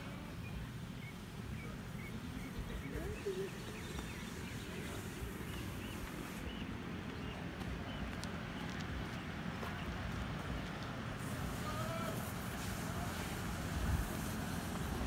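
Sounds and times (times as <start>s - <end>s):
small birds chirping: 0.1s - 10.8s.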